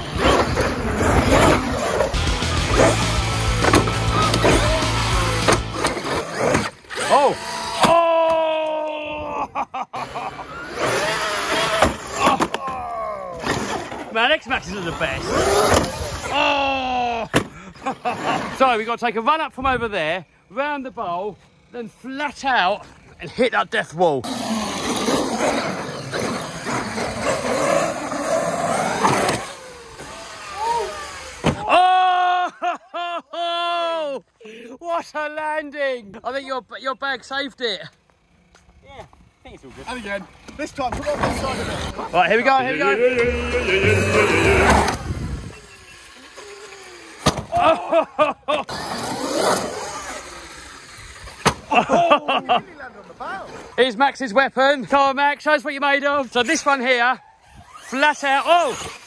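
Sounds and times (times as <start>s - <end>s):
electric motor whining: 0.0s - 8.0s, 10.0s - 16.9s, 24.2s - 31.7s, 41.0s - 47.6s, 48.6s - 51.5s
toy truck crashing: 2.7s - 8.0s, 10.5s - 14.1s, 15.2s - 16.4s, 24.2s - 31.7s, 43.3s - 47.8s, 48.7s - 51.7s
person shouting: 7.1s - 9.3s, 16.2s - 17.3s, 30.4s - 32.5s, 42.6s - 44.9s.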